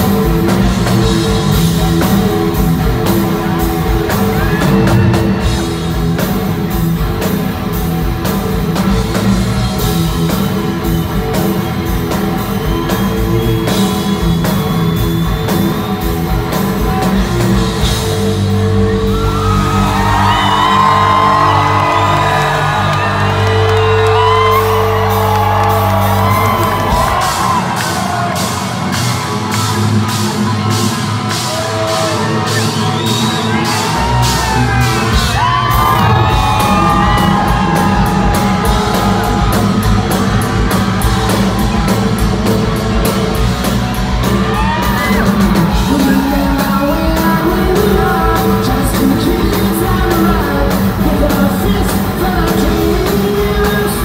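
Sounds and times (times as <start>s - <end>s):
crowd whooping: 0.0s - 54.0s
hard rock band playing live: 0.0s - 54.0s
singer's vocals: 44.7s - 54.0s.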